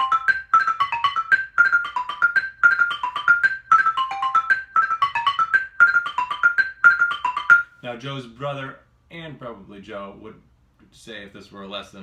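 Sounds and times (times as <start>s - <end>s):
xylophone broken chords: 0.0s - 7.7s.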